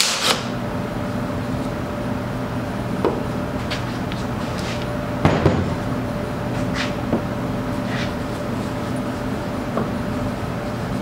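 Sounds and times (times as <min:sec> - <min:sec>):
steady background hum: 0:00.0 - 0:11.0
knock on workbench: 0:05.2 - 0:05.7.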